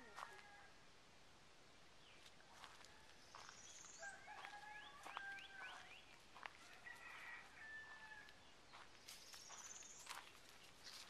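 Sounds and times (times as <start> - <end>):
bird calls and trills: 2.0 - 6.5, 8.4 - 11.0
footsteps on dry leaves: 2.2 - 11.0.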